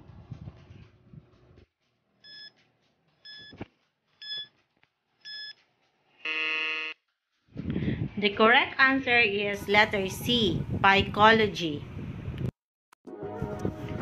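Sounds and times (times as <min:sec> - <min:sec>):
short electronic beeps: 0:02.3 - 0:02.5, 0:03.3 - 0:03.6, 0:04.2 - 0:04.5, 0:05.3 - 0:05.6
buzzer: 0:06.2 - 0:07.0.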